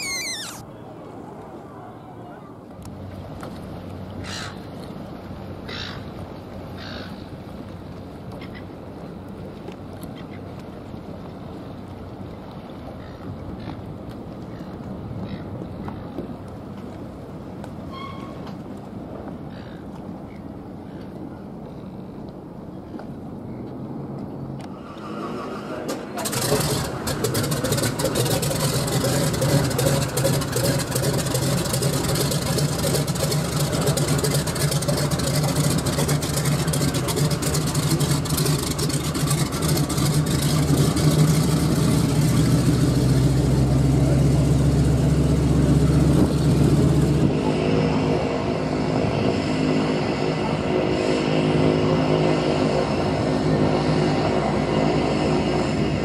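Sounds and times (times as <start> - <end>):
propeller hissing: 0.0 - 0.6, 24.8 - 43.2, 44.0 - 56.0
floatplane engine running: 0.0 - 56.0.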